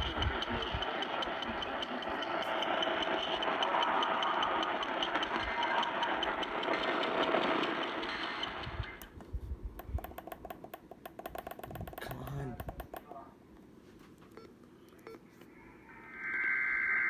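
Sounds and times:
radio static hiss: 0.0s - 9.0s
rapid rhythmic clicking: 0.0s - 13.1s.

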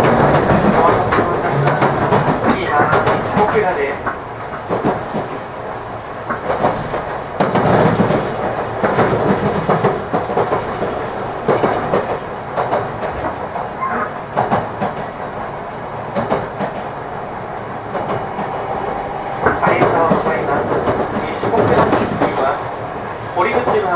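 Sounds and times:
clattering over rail joints: 0.0s - 5.2s, 6.2s - 17.1s, 17.8s - 23.9s
train wheels rumbling on rail: 0.0s - 23.9s.

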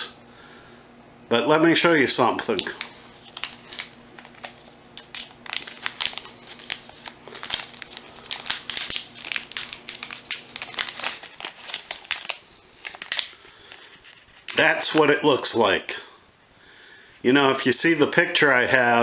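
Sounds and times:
packet crinkling and rustling: 2.4s - 15.0s.

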